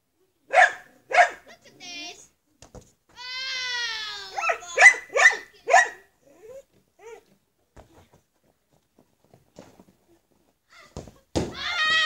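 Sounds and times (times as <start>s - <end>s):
dog barking: 0.5s - 1.5s, 4.4s - 6.1s.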